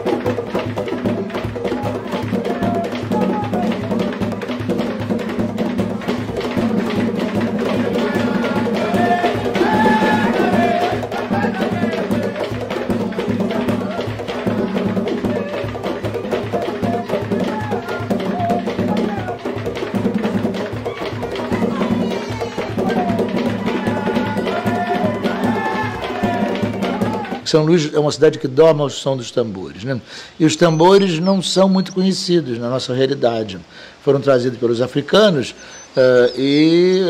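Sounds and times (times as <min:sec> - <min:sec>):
hand drums with wooden knocks: 0:00.0 - 0:27.8
person singing: 0:01.6 - 0:04.2, 0:07.6 - 0:19.5, 0:20.8 - 0:27.4.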